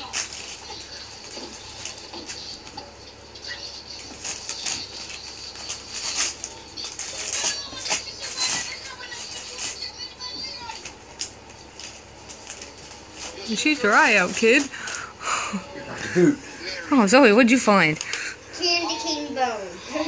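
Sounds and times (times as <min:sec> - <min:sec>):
dog tearing wrapping paper: 0:00.0 - 0:02.7, 0:03.9 - 0:15.1.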